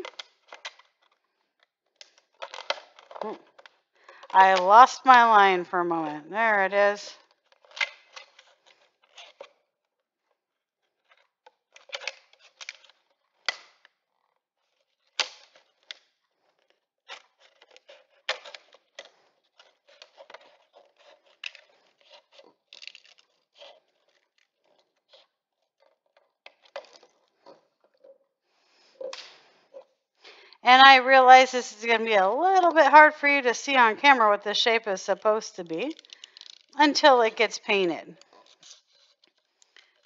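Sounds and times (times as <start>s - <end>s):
plastic crackling: 0.0s - 5.0s, 7.2s - 28.3s, 34.9s - 40.0s.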